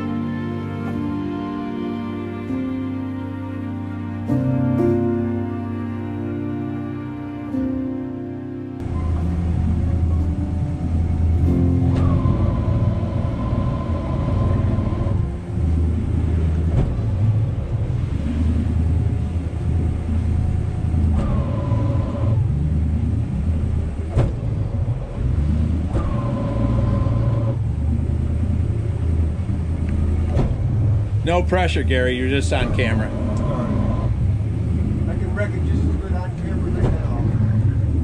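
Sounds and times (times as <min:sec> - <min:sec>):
boat engine rumbling: 0:00.0 - 0:38.0
high-pitched whine: 0:08.8 - 0:38.0.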